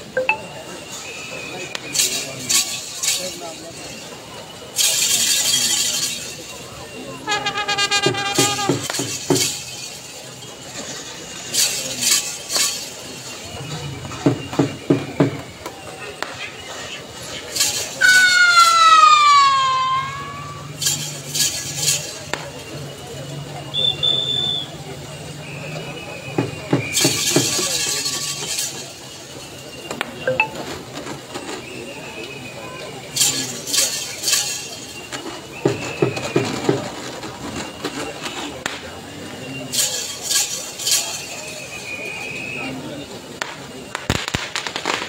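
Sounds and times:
metallic clinks and clacks: 20.8s - 22.3s.

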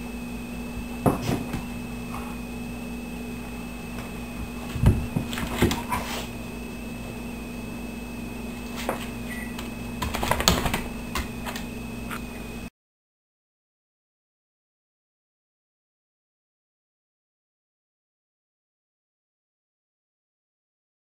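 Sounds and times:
steady hum: 0.0s - 12.7s.

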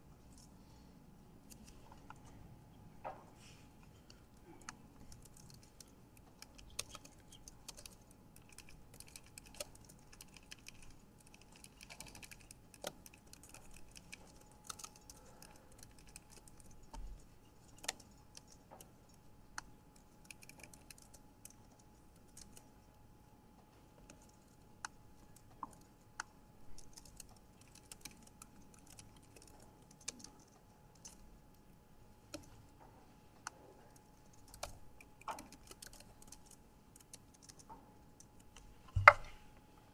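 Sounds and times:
faint steady hum: 0.0s - 39.9s
typing on computer keyboard: 4.5s - 22.8s, 24.0s - 31.3s, 34.0s - 38.3s.

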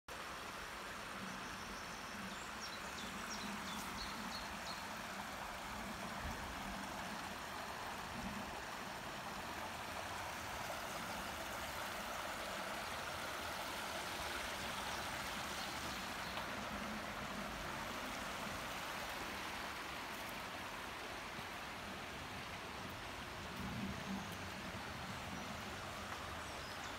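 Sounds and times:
stream rushing over stones: 0.1s - 26.9s.

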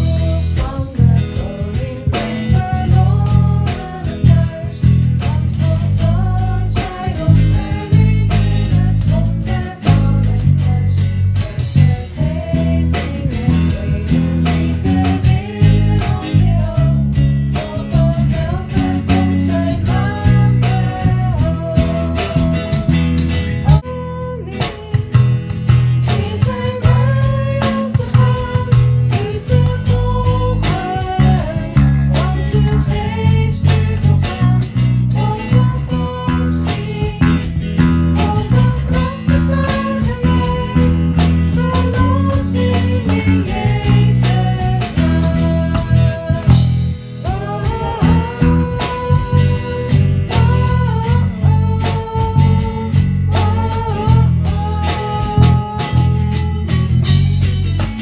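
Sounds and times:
bass guitar: 0.0s - 58.0s
guitar-driven worship song: 0.0s - 58.0s
gliding melodic lead line: 25.2s - 51.8s.

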